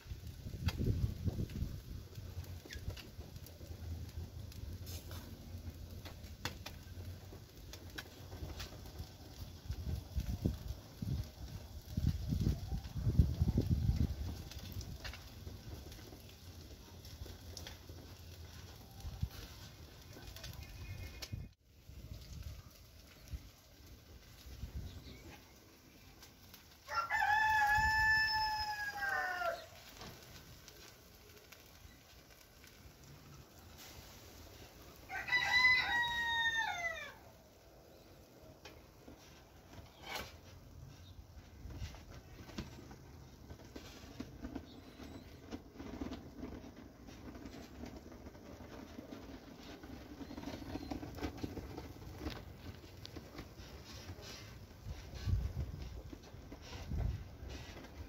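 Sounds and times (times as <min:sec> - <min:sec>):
fish sizzling over charcoal: 0:00.0 - 0:58.0
rooster crowing: 0:26.8 - 0:29.8, 0:35.1 - 0:37.3.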